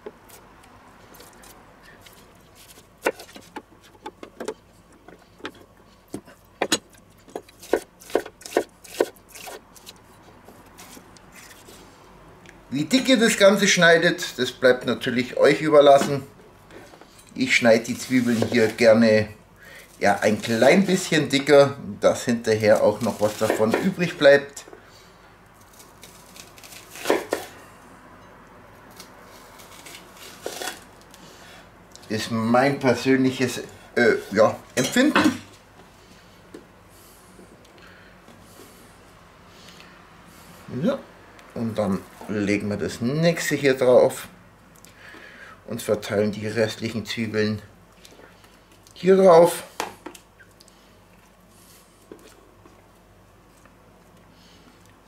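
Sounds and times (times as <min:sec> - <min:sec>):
knife slicing onion: 0:05.6 - 0:11.7, 0:22.6 - 0:24.2, 0:25.6 - 0:27.6.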